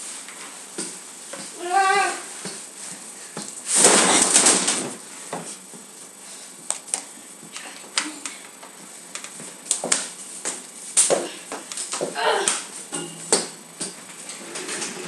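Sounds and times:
footsteps on hard floor: 0:00.3 - 0:04.0, 0:08.6 - 0:12.2.

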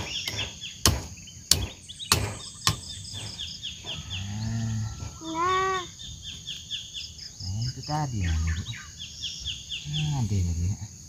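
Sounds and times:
sharp chopping knocks: 0:00.0 - 0:03.4
insects chirring: 0:00.0 - 0:11.0.

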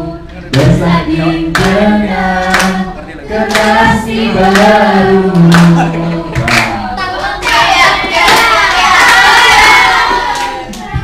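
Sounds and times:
group singing together: 0:00.0 - 0:11.0
hand claps: 0:01.5 - 0:01.8, 0:02.5 - 0:02.8, 0:03.5 - 0:03.8, 0:05.4 - 0:05.8, 0:06.4 - 0:06.8.

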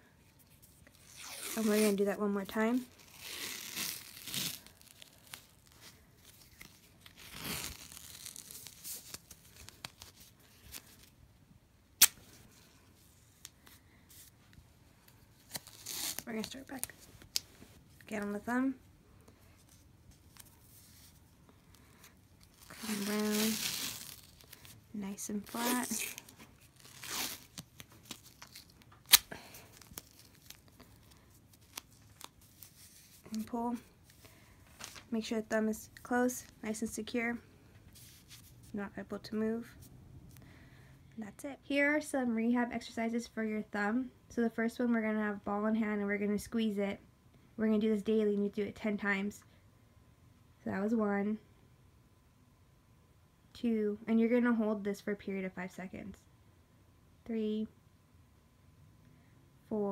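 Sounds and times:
bandage stretching and rustling: 0:00.3 - 0:11.2, 0:12.0 - 0:18.0, 0:19.4 - 0:35.1.

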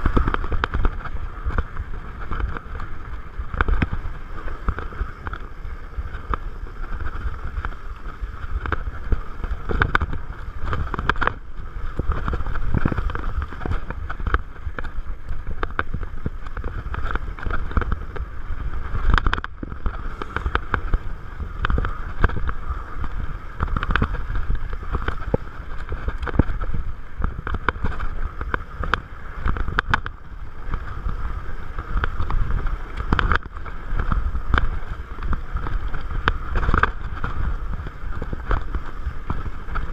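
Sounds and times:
bike rattling over stones: 0:00.0 - 0:39.9
fat tyres on dirt: 0:00.0 - 0:39.9
wind on microphone: 0:00.0 - 0:39.9.

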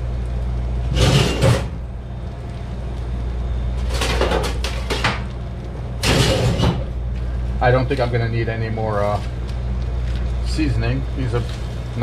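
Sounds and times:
steady low hum: 0:00.0 - 0:12.0
metal kitchen utensils clattering: 0:00.9 - 0:01.7, 0:06.0 - 0:06.9.

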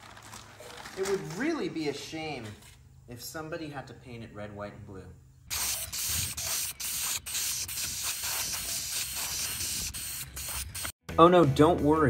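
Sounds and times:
spray paint can hissing: 0:05.5 - 0:11.0.

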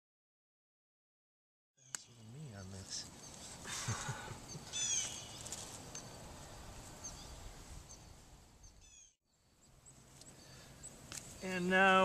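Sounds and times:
short high bird chirps: 0:04.5 - 0:06.1.

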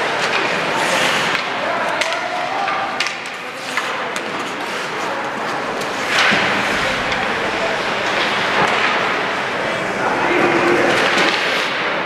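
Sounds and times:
hockey sticks and puck clacking: 0:00.0 - 0:12.0
skates scraping ice: 0:00.0 - 0:12.0
hum of spectator voices: 0:05.6 - 0:10.8.

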